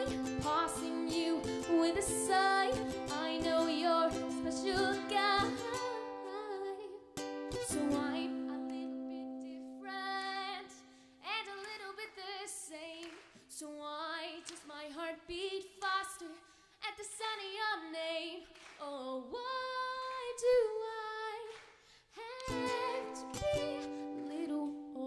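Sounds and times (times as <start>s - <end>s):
woman singing into microphone: 0.0s - 7.0s, 7.6s - 21.5s, 22.2s - 25.0s
ukulele strumming: 0.0s - 10.7s, 22.4s - 25.0s.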